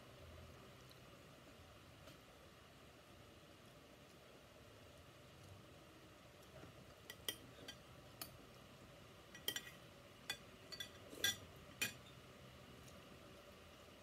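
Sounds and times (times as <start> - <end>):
cutlery clinking on plate: 9.4 - 12.1.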